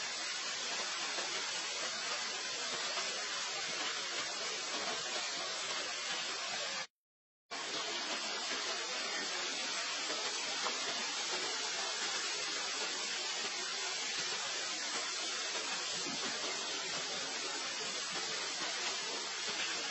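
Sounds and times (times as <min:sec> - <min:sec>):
steady white noise hiss: 0:07.6 - 0:19.9.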